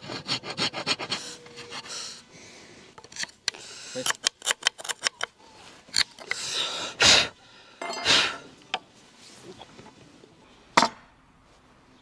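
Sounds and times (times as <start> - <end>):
file rasping on wood: 0.0 - 1.9.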